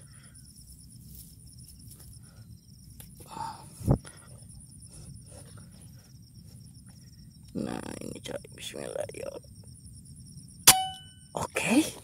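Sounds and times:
high-pitched insect chirring: 6.0 - 11.4.

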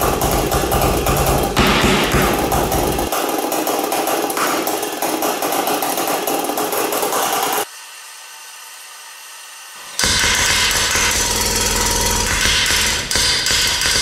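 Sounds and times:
pulse engine rapid sharp pulses: 9.9 - 14.0.

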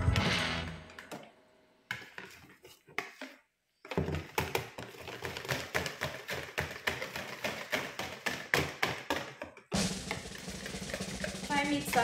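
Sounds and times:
whisk beating batter in bowl: 4.8 - 9.4, 10.0 - 12.0.

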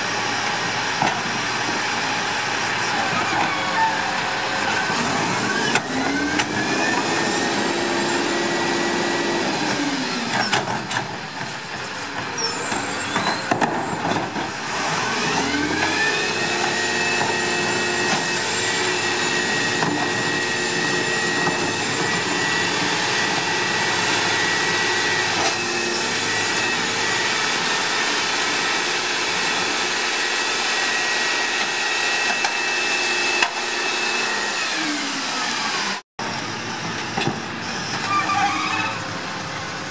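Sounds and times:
diesel engine revving: 0.0 - 39.9
hydraulic pump whine: 0.0 - 39.9
knocks of carts and trash: 10.3 - 18.7.

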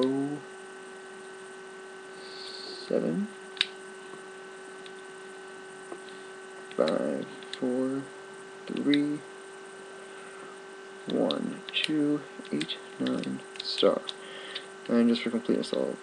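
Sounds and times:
man speaking: 0.0 - 0.5, 2.2 - 3.4, 6.8 - 9.3, 11.1 - 14.2, 14.8 - 16.0
electrical mains hum: 0.0 - 16.0
sharp click: 3.5 - 3.8, 11.1 - 15.0.

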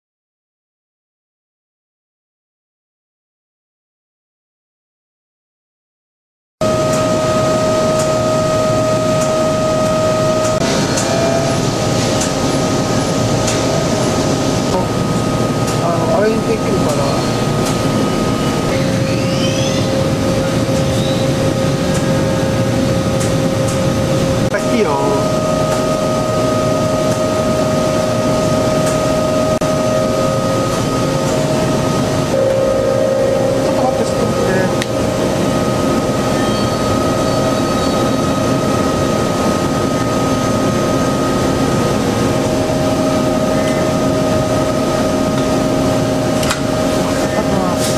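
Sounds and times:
machine hum: 6.6 - 47.9
machine whine: 6.6 - 47.9.

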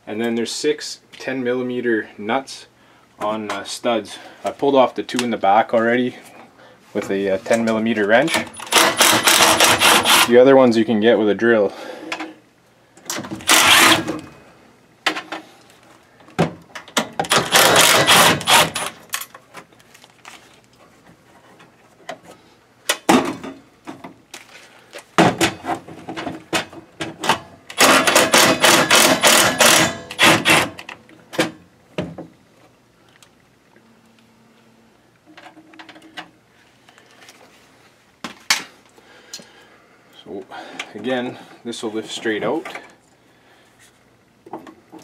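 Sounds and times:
cordless drill spinning nuts off: 8.7 - 10.3, 13.4 - 14.1, 17.3 - 19.0.

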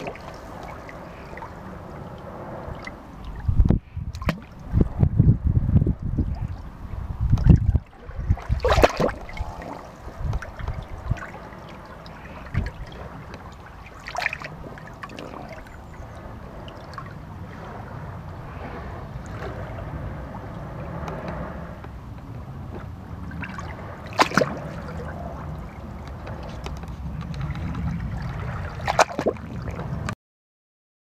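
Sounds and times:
water splash: 0.0 - 1.6, 2.7 - 4.9, 6.2 - 16.0, 23.2 - 25.2, 27.4 - 30.1
seawater surging in rock crevice: 0.0 - 30.2.

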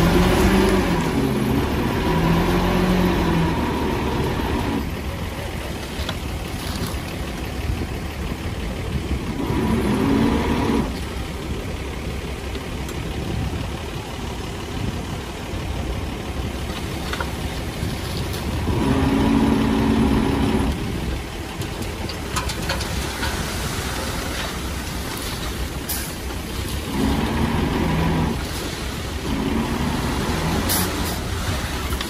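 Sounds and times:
heavy diesel engine running: 0.0 - 32.0.

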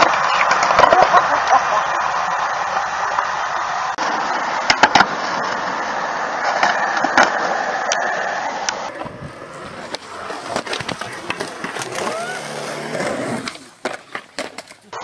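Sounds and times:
skateboard clacks: 0.0 - 1.7, 4.6 - 5.7, 6.4 - 8.1, 8.7 - 15.0
skateboard wheels rolling on concrete: 0.0 - 15.0.

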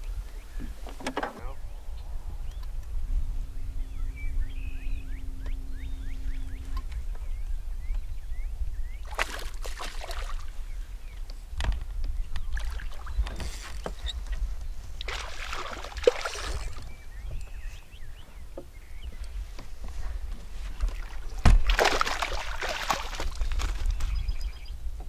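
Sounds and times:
low rumble: 1.5 - 9.1
fish splashing in water: 9.0 - 10.6, 15.0 - 16.9, 21.0 - 23.9.

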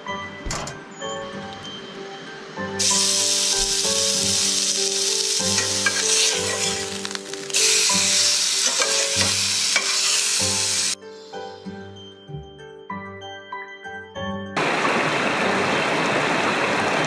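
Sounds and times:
spatula turning steak: 2.8 - 11.0
steak sizzling in a frying pan: 2.8 - 11.0.

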